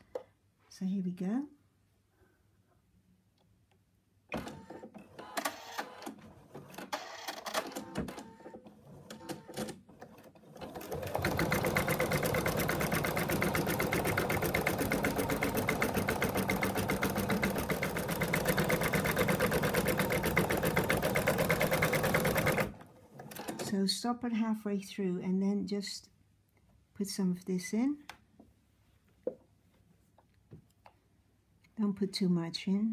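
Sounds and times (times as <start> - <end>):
embroidery machine stitching: 6.7 - 23.8.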